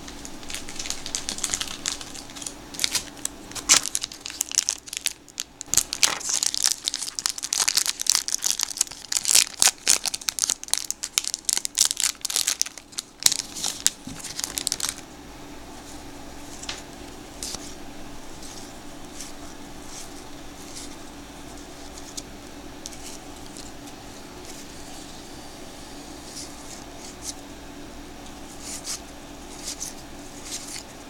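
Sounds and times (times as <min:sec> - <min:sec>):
foil wrapper tearing and crinkling: 0:00.3 - 0:15.0.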